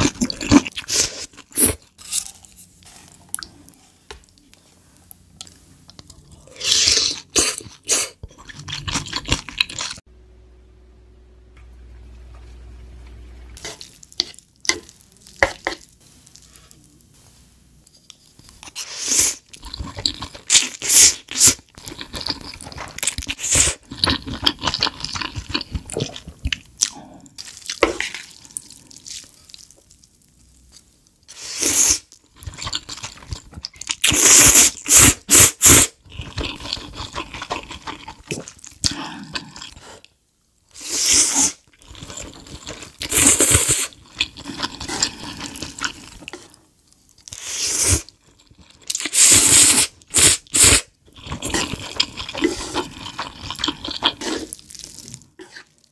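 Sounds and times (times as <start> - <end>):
slurping noodles: 34.0 - 40.1, 40.8 - 46.6, 47.4 - 48.2, 48.9 - 55.8
wet chewing: 35.6 - 40.1, 48.0 - 55.9.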